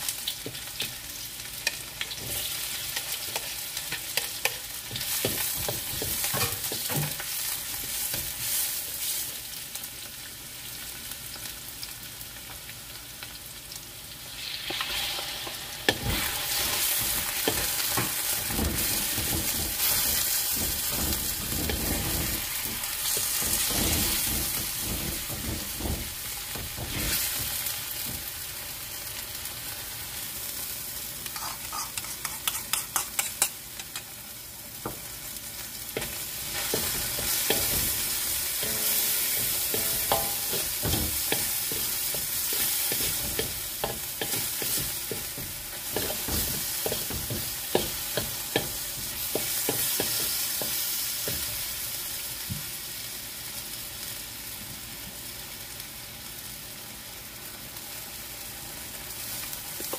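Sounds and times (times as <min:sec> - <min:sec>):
chicken sizzling in a wok: 0:00.0 - 0:59.9
wooden spatula scraping pan: 0:16.1 - 0:27.6, 0:36.0 - 0:50.4.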